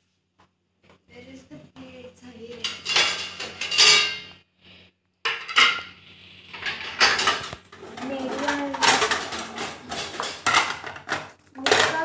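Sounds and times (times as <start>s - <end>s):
steel dishes clattering: 2.6s - 4.3s, 5.3s - 5.9s, 6.5s - 12.0s.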